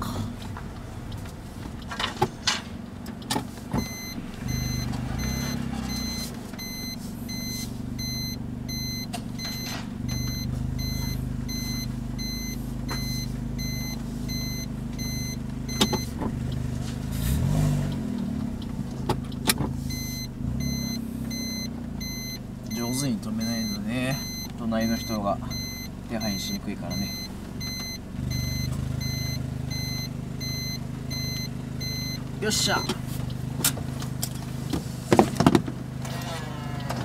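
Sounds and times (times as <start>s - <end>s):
car engine running: 0.0s - 37.0s
sharp clicks and knocks: 0.4s - 5.1s, 12.9s - 16.6s, 17.9s - 20.3s
reverse warning beeps: 3.8s - 16.2s, 19.8s - 33.0s.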